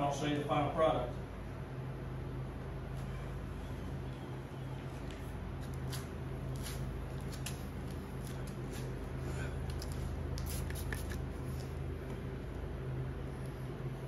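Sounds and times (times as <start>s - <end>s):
steady low hum: 0.0s - 14.0s
spray bottle spritzing: 10.4s - 11.7s.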